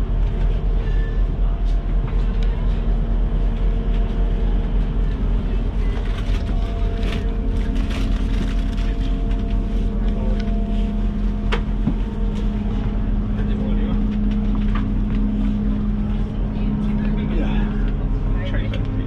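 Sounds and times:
diesel engine idling hum: 0:00.0 - 0:19.0
passengers moving knocks and rustles: 0:00.1 - 0:19.0.

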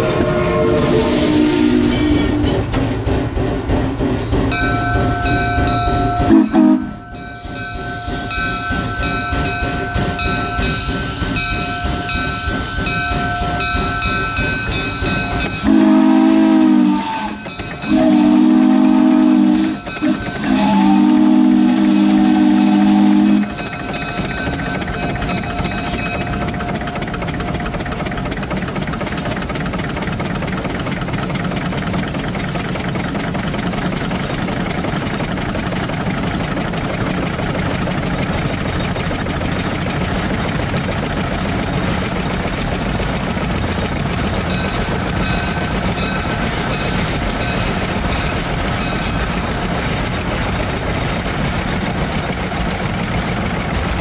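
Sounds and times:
steam whistle blasts: 0:00.0 - 0:02.6, 0:06.2 - 0:08.5, 0:15.6 - 0:23.6
steam locomotive hiss and rumble: 0:00.0 - 0:54.0.

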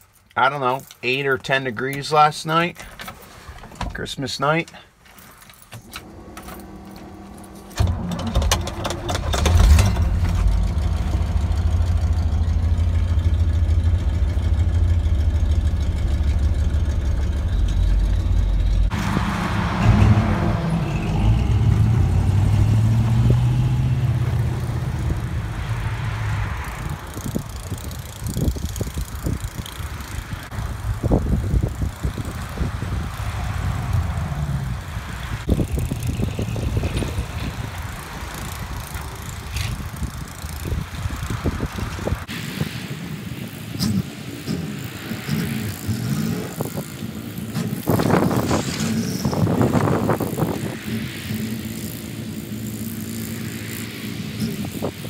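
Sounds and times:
engine cranking: 0:05.1 - 0:25.7
truck engine moving off: 0:05.7 - 0:55.0
engine revving and idling: 0:06.0 - 0:42.4, 0:43.5 - 0:55.0.

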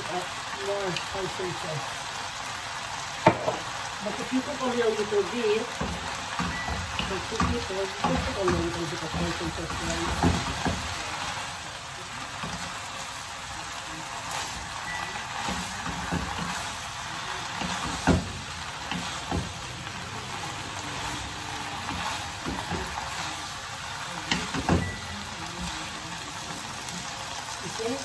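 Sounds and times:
food sizzling in a pan: 0:00.0 - 0:28.0
utensils knocking against pan: 0:03.2 - 0:03.7, 0:05.7 - 0:10.9, 0:17.6 - 0:19.6.

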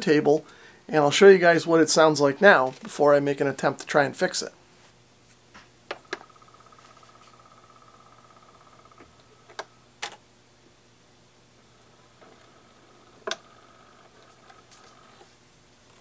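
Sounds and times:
turntable motor whine: 0:11.6 - 0:16.0.

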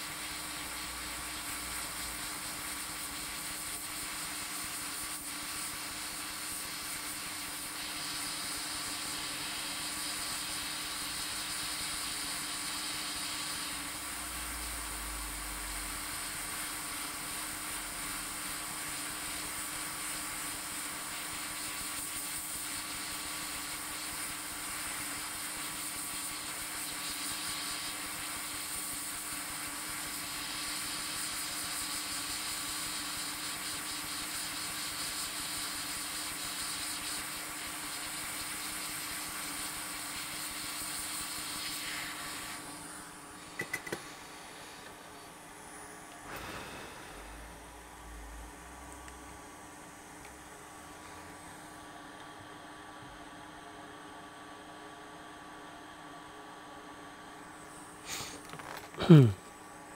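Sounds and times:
hot air gun hissing: 0:00.0 - 0:47.8, 0:58.0 - 0:59.3
steady hum: 0:38.0 - 0:53.9.

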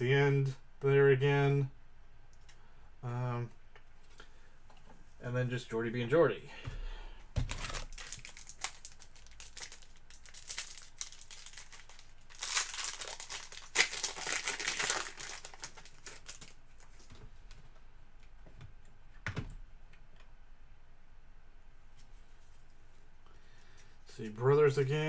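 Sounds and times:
wrapper crinkling and tearing: 0:07.4 - 0:16.9.

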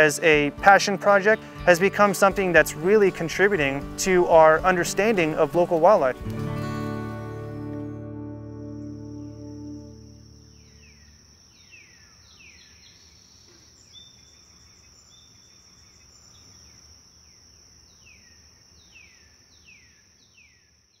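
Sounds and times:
high-pitched insect trill: 0:08.5 - 0:20.6.

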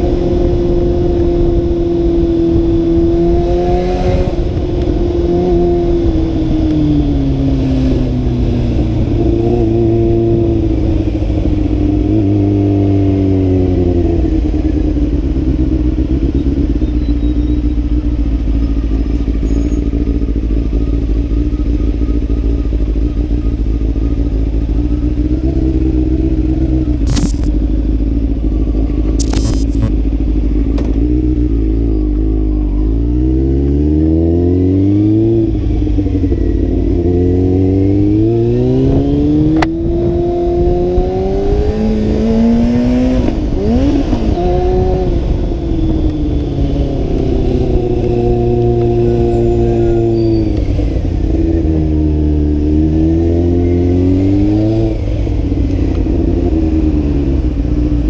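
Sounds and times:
motorcycle engine running: 0:00.0 - 0:33.8.

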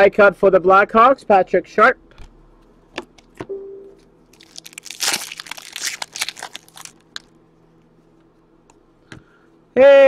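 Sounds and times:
card pack wrapper tearing: 0:04.4 - 0:07.3.

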